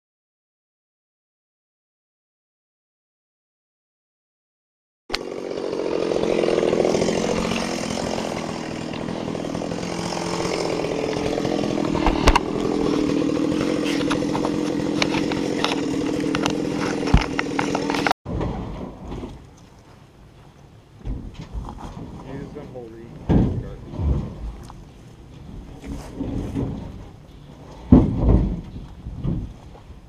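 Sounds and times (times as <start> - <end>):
chainsaw engine running: 5.1 - 18.2
sharp knocks: 27.9 - 29.6.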